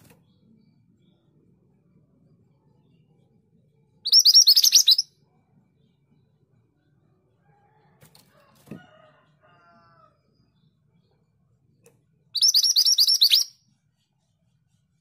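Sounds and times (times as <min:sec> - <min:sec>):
bird chirping high and sharp: 0:04.0 - 0:05.1, 0:12.4 - 0:13.6.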